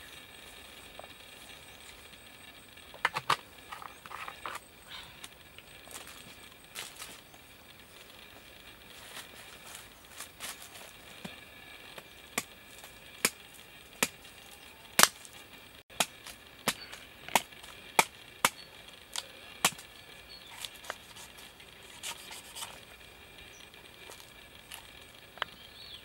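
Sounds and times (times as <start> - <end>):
knife chopping coconut husk: 13.2 - 13.4, 15.0 - 15.2, 15.9 - 19.9.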